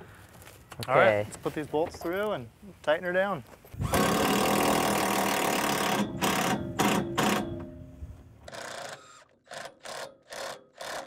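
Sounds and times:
cordless drill driving a bolt: 0:03.8 - 0:07.5, 0:08.5 - 0:11.0.

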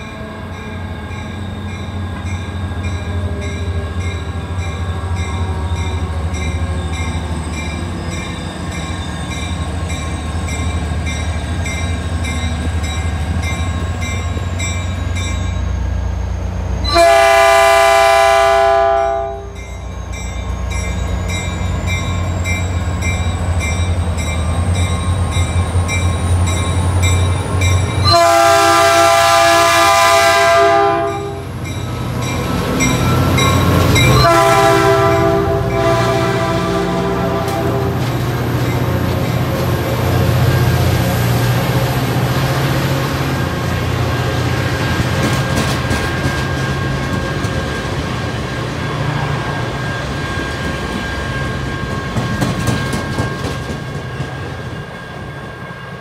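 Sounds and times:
diesel locomotive rumbling: 0:00.0 - 0:56.0
train horn blast: 0:16.8 - 0:19.6, 0:28.0 - 0:31.6, 0:34.1 - 0:38.1.

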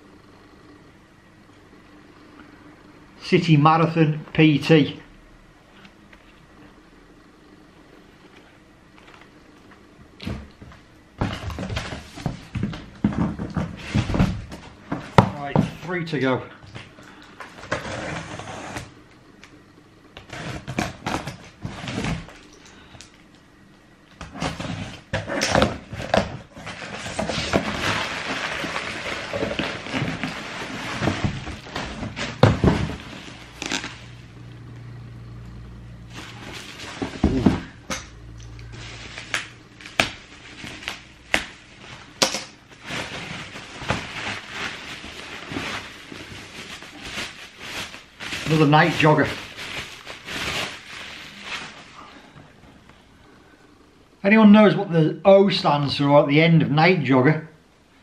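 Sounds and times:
plastic packaging crinkling: 0:24.4 - 0:34.2, 0:36.0 - 0:52.3.

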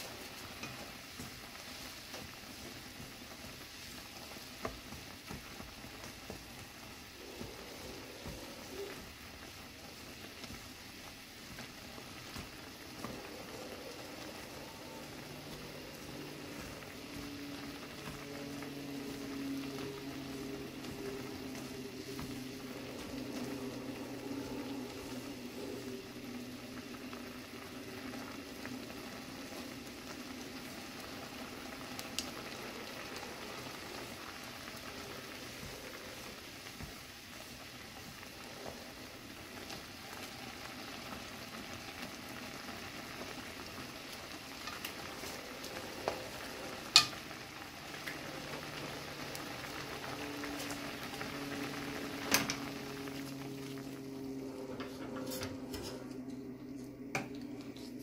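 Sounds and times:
chopsticks stirring: 0:00.0 - 0:26.2, 0:44.6 - 0:51.7, 0:53.5 - 0:58.0
noodles bubbling in a pan: 0:00.0 - 0:58.0.

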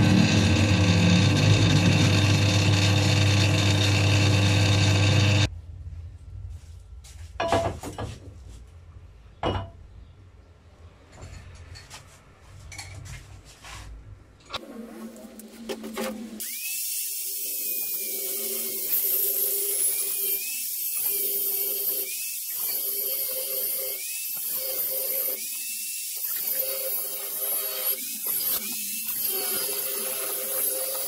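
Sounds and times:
angle grinder motor whine: 0:00.0 - 0:05.5
disc grinding steel: 0:00.0 - 0:05.5.

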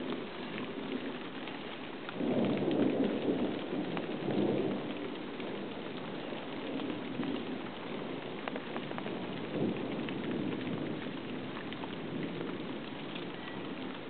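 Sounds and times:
heavy rain hissing: 0:00.0 - 0:14.0
low rumble of thunder: 0:00.0 - 0:14.0.

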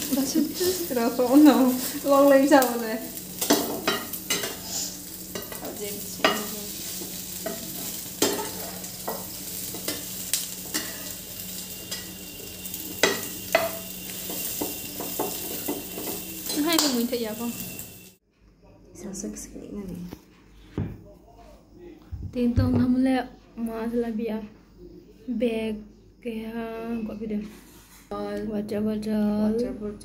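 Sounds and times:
egg sizzling in frying pan: 0:00.0 - 0:18.2
metal spatula scraping pan: 0:03.4 - 0:16.8.

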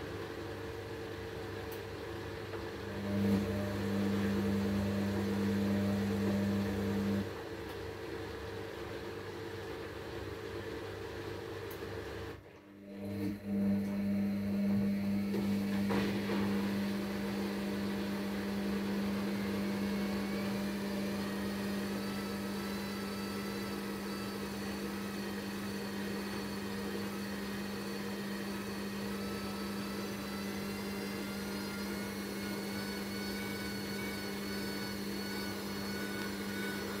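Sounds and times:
washing machine running: 0:00.0 - 0:37.0
faint rising motor whine: 0:16.6 - 0:37.0.

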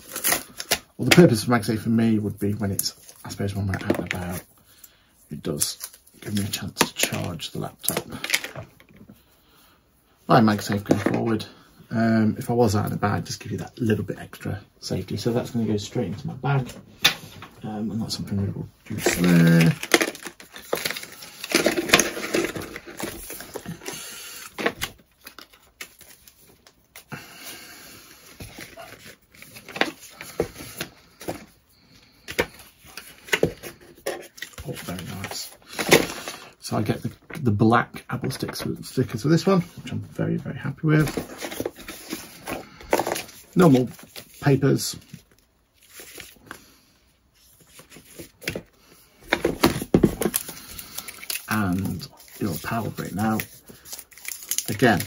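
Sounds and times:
cardboard and paper rustling: 0:15.4 - 0:27.1, 0:28.2 - 0:37.4, 0:38.1 - 0:46.6, 0:47.4 - 0:55.0
cardboard rustling and scraping: 0:18.0 - 0:23.9, 0:40.9 - 0:46.5.

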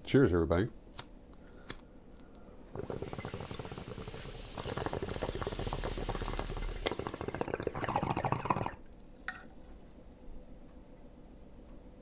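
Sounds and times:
water bubbling in a bong: 0:02.7 - 0:08.9.

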